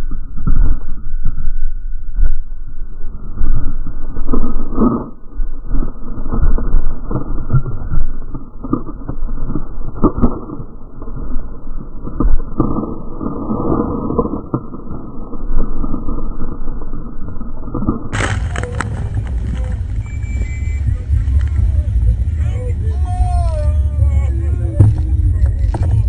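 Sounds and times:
speedboat crashing through water: 18.1 - 26.0.

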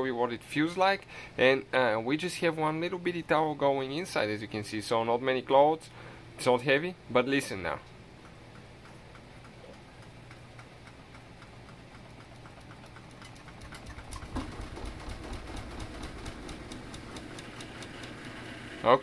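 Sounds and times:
washing machine motor and drum hum: 6.4 - 19.0
washing machine drum knocking: 12.2 - 17.9.

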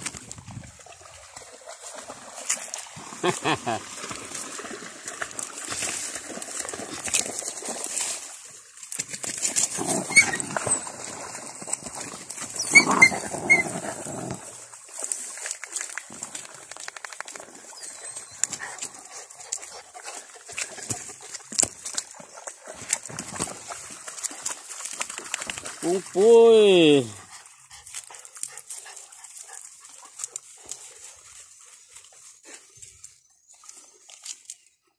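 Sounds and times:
rustling in wet grass: 0.0 - 34.8
splashing and scuffling: 0.0 - 34.8
puppies yelping: 12.6 - 13.8
puppy panting: 17.8 - 21.4, 27.2 - 31.0.

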